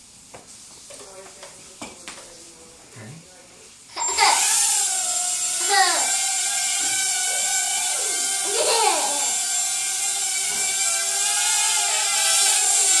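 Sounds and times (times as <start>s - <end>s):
drone propellers whining: 4.0s - 13.0s.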